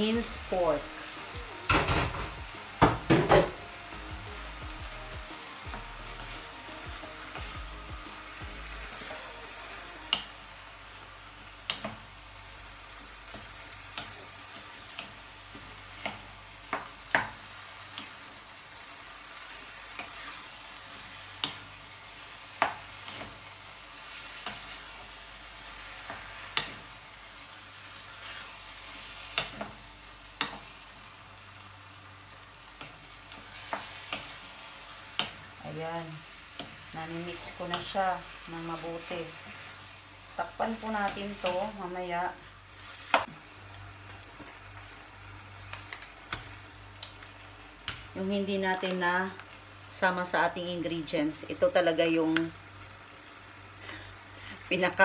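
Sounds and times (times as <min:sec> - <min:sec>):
meat sizzling in a frying pan: 0:00.0 - 0:55.0
wooden spoon knocking on pan: 0:01.7 - 0:03.6.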